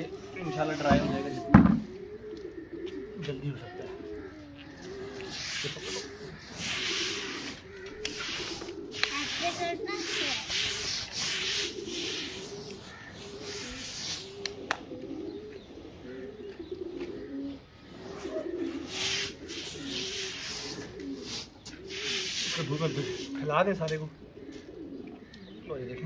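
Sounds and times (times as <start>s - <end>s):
pigeons cooing: 0.0s - 26.0s
hands raking wet grain: 5.0s - 14.6s, 18.2s - 23.5s.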